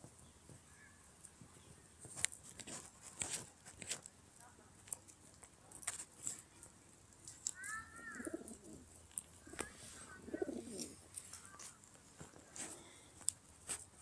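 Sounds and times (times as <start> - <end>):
pigeon cooing: 7.6 - 11.0.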